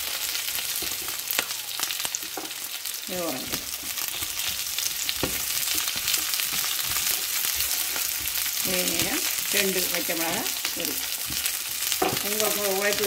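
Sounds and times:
vegetables sizzling in oil: 0.0s - 13.0s
wooden spatula scraping a pan: 3.6s - 13.0s.

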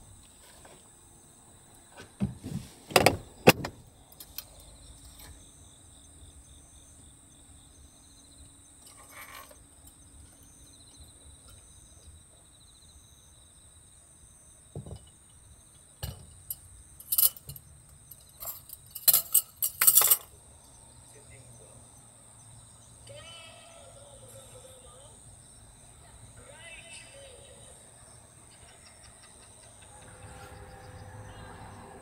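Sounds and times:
crickets chirring: 0.0s - 32.0s
glass clinking on wooden counter: 14.8s - 15.1s.

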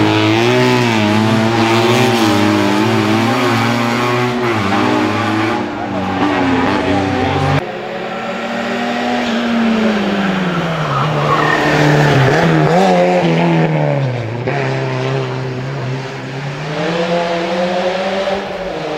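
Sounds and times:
race car engine: 0.0s - 18.9s
tyre squeal: 10.5s - 12.4s.

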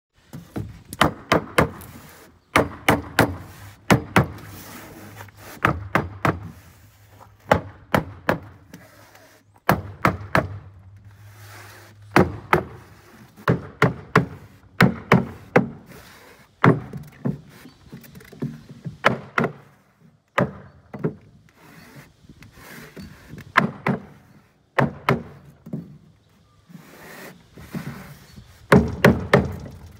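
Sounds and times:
hammer knocking on wood block: 13.5s - 15.8s.

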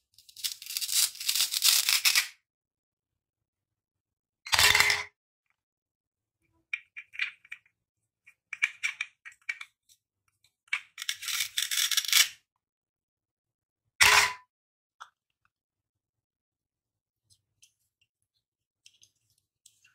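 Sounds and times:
velcro ripping apart: 0.3s - 2.3s
plastic toy pieces clicking: 10.8s - 12.3s.

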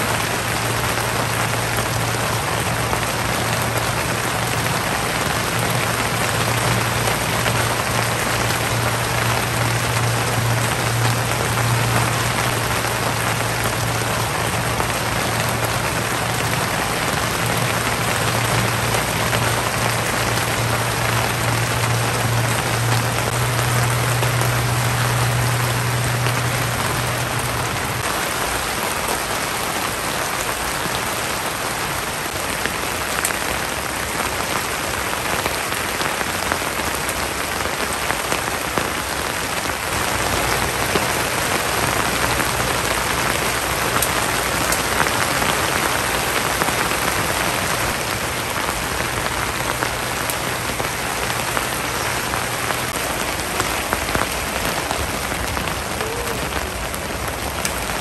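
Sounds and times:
heavy rain pattering on tent: 0.0s - 58.0s.

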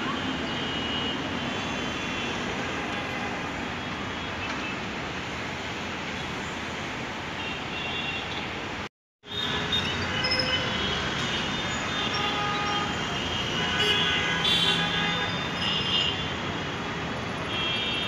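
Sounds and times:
traffic engines and tyres: 0.0s - 18.0s
vehicle horns tooting: 9.3s - 16.3s, 17.4s - 18.0s.

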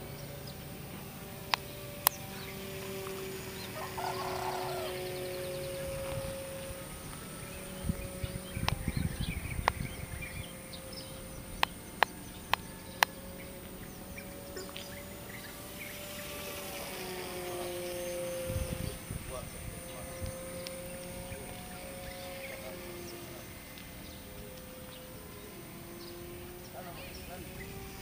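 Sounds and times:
birds chirping: 0.0s - 28.0s
model plane motor whine: 0.0s - 28.0s
sharp clicks: 1.4s - 3.4s, 8.6s - 8.9s, 9.6s - 9.9s, 11.5s - 13.8s, 20.6s - 20.9s.

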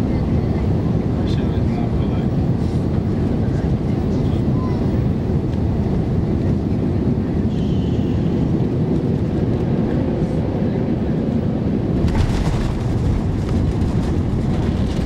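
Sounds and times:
airplane cabin engine rumble: 0.0s - 15.0s
wheels touching runway: 11.9s - 15.0s.

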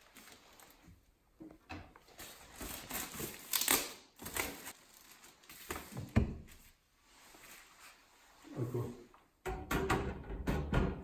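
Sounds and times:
plastic wrapping rustling: 0.0s - 1.0s, 2.0s - 8.1s.

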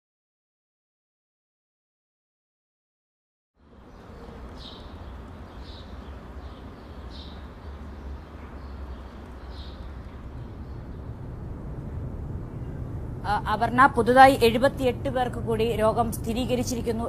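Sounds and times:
bird chirping: 3.6s - 13.1s
low rumble and hiss: 3.6s - 17.0s.

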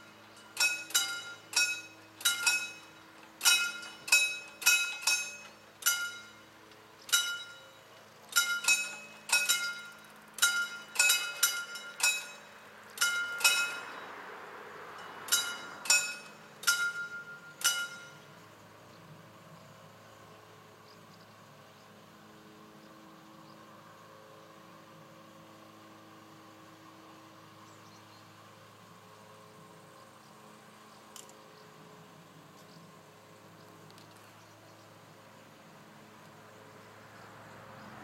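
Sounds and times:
mechanical warning bell ringing: 0.0s - 14.1s, 15.0s - 18.4s.

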